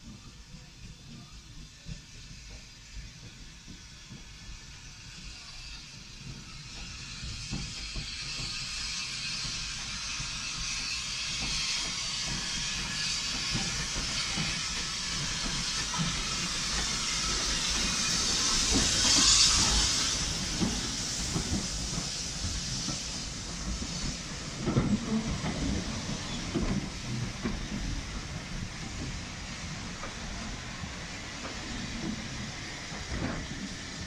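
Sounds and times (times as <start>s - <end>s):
steam locomotive hissing: 0.0s - 34.0s
wheels clicking over rail joints: 23.0s - 29.2s.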